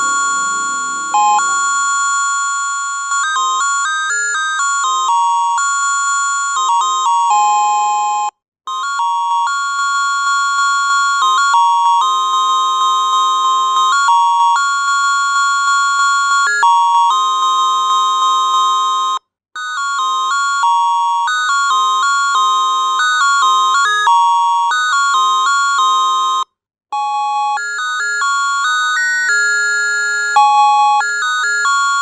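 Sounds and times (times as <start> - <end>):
electronic doorbell chime melody: 0.0 - 7.6, 8.8 - 26.4, 27.0 - 32.0.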